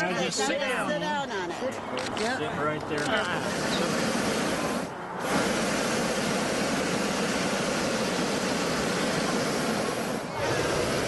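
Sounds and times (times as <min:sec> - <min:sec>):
propane burner firing: 0:03.0 - 0:11.0.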